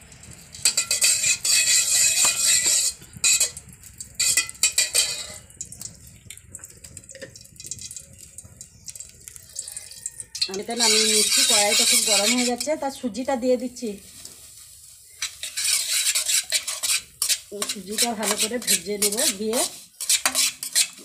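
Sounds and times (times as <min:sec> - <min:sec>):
metal spatula scraping metal pan: 0:00.0 - 0:05.9, 0:09.8 - 0:13.2, 0:13.8 - 0:21.0
spatula tapping pan: 0:00.0 - 0:12.8, 0:15.2 - 0:21.0.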